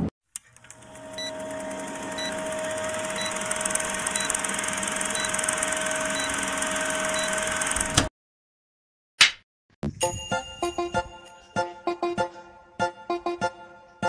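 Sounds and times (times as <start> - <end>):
film projector whirring and clicking: 0.3 - 8.1.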